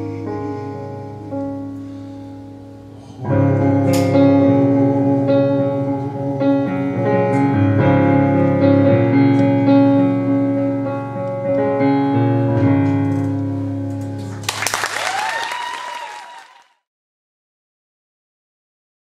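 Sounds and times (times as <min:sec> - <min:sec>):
piano sustained chords: 0:00.0 - 0:14.9.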